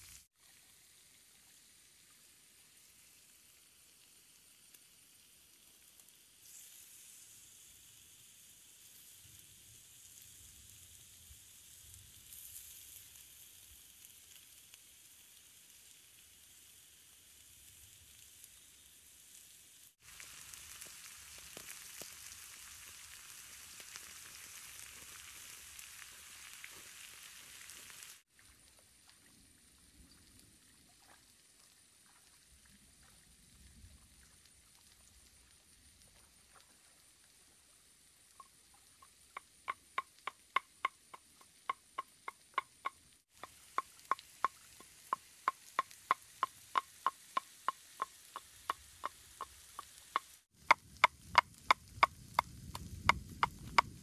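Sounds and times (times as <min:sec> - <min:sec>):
meat sizzling on hot stone: 0:00.0 - 0:01.1, 0:01.7 - 0:28.3, 0:41.9 - 0:54.0.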